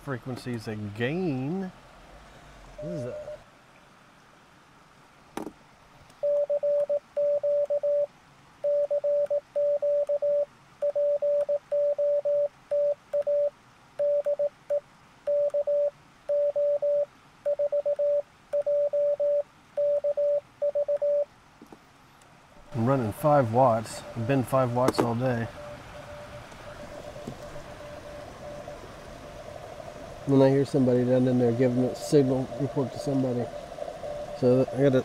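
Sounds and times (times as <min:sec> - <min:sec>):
morse code beeps: 0:02.8 - 0:03.4, 0:06.2 - 0:21.3.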